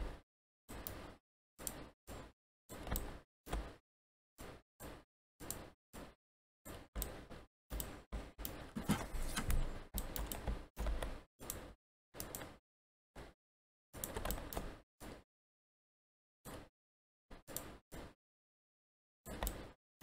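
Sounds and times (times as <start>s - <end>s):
keyboard and mouse clicking: 14.0s - 14.7s.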